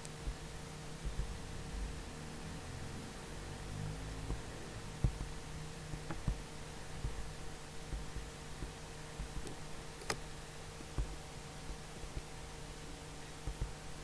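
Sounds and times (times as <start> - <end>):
electrical hum: 0.0 - 14.0
soft clicks: 8.6 - 10.2.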